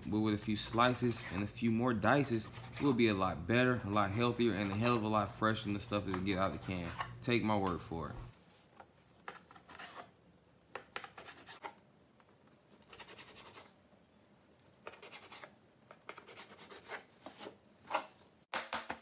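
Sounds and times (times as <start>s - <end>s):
knife tapping and scraping on board: 10.7s - 11.8s.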